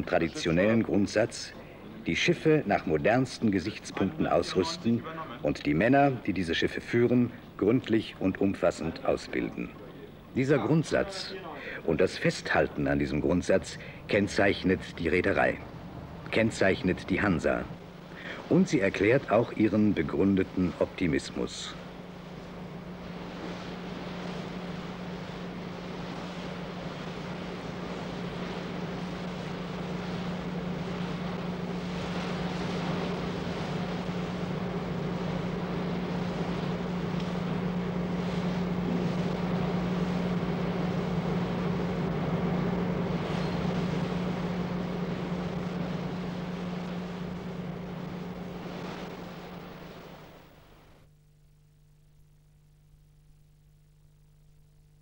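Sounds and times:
engine drone with rushing noise: 0:13.1 - 0:51.1.

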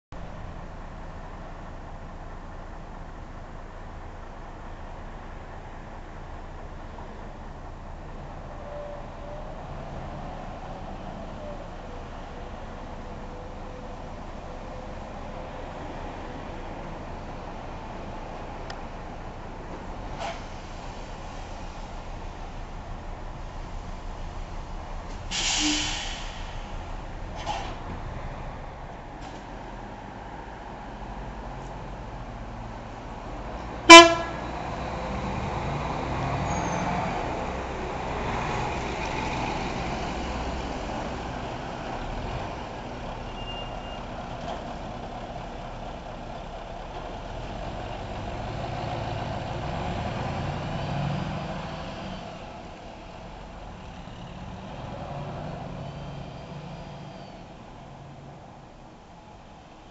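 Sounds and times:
coach diesel engine pulling away: 0:00.3 - 0:58.4
short horn toot: 0:25.3 - 0:26.4, 0:33.9 - 0:34.5.

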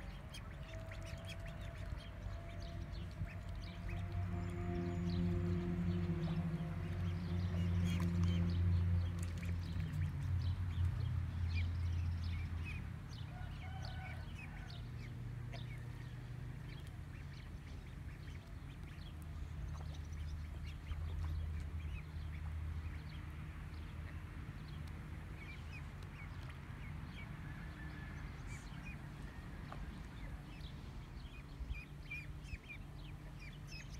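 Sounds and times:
steady low hum: 0:00.0 - 0:13.2
ducklings peeping: 0:00.0 - 0:33.9
held low tone: 0:03.0 - 0:08.3.

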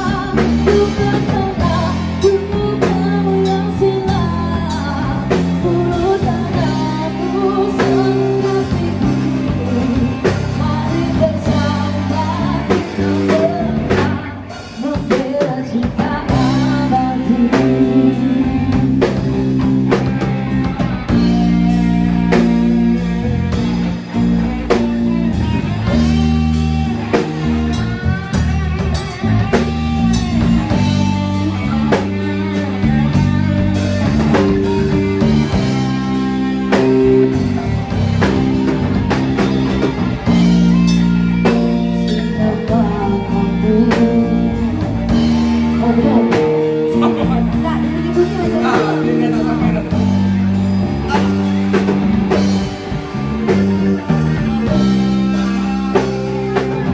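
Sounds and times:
woman singing into a microphone: 0:00.0 - 0:19.6, 0:42.1 - 0:49.7
bass guitar: 0:00.0 - 0:56.9
drum kit: 0:00.0 - 0:56.9
electric guitar: 0:00.0 - 0:56.9.

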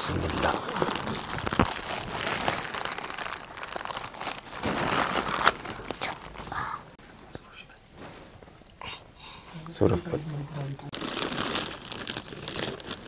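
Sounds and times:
plastic wrapping crinkling: 0:00.0 - 0:06.8, 0:10.9 - 0:13.0.

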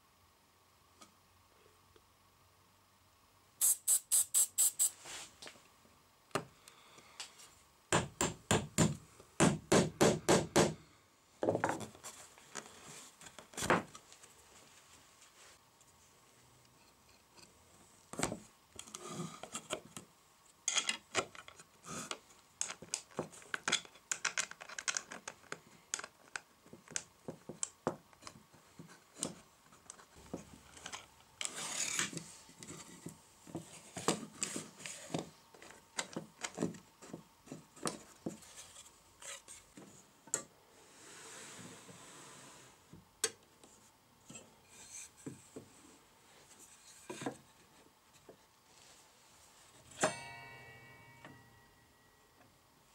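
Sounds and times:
wooden arm sliding and rubbing: 0:30.2 - 0:35.2, 0:40.9 - 0:42.8.

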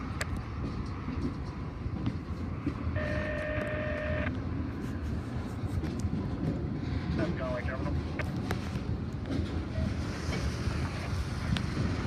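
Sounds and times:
train wheels rumbling on rail: 0:00.0 - 0:12.0
steady high tone: 0:03.0 - 0:04.3.

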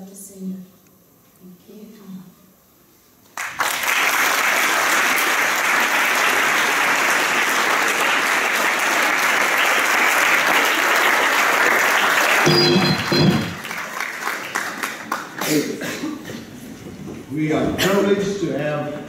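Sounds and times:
audience applauding: 0:03.4 - 0:15.7.

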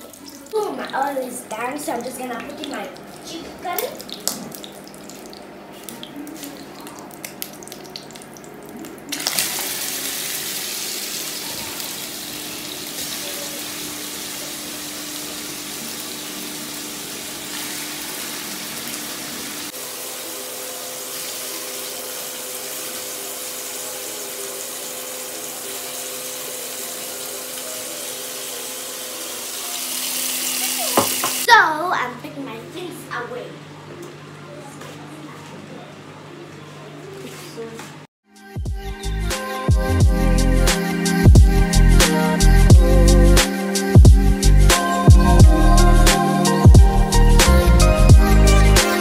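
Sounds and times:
chicken frying in hot oil: 0:02.2 - 0:31.5.

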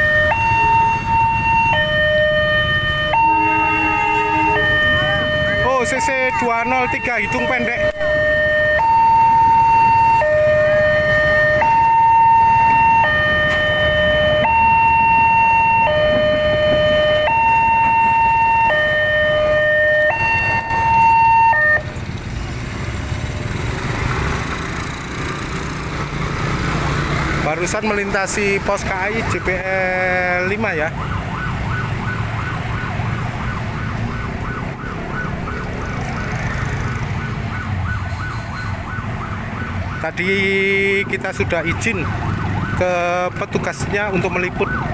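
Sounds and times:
two-tone crossing alarm: 0:00.0 - 0:22.0, 0:28.8 - 0:44.9
passing train rumble: 0:12.4 - 0:19.6
motorcycle engines running: 0:21.8 - 0:30.4, 0:31.0 - 0:37.9.

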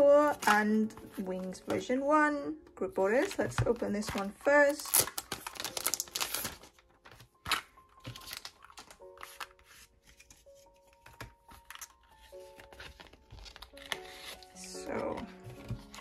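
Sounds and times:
soft background music: 0:00.0 - 0:16.0
paper envelope tearing and rustling: 0:04.0 - 0:14.8.

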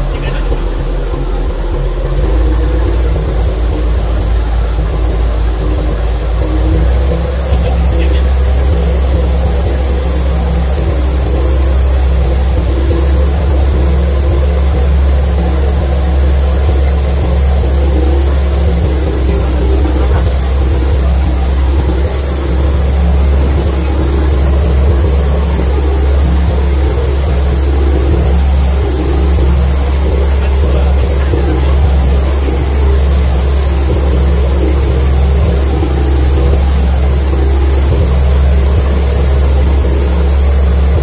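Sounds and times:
boat engine droning: 0:00.0 - 0:41.0.

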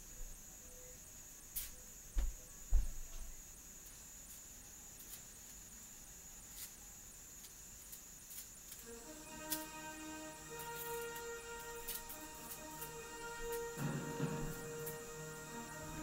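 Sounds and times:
high-pitched electronic whine: 0:08.8 - 0:16.0
soft music: 0:08.8 - 0:16.0.

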